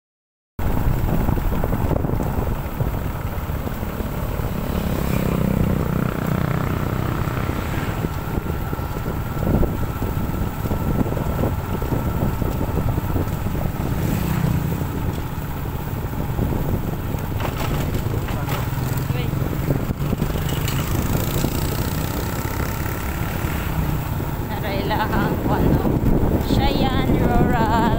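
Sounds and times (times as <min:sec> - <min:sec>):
motorcycle engine running: 0:00.6 - 0:27.9
wind noise on microphone: 0:00.6 - 0:27.9.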